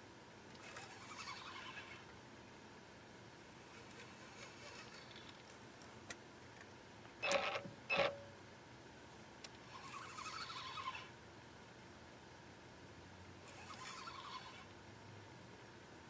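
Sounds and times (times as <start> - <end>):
spinning reel being cranked: 0.6 - 2.0, 13.5 - 14.6.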